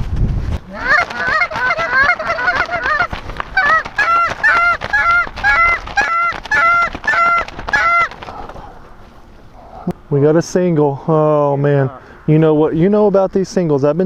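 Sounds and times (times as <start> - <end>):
goose call honks: 0.7 - 8.4.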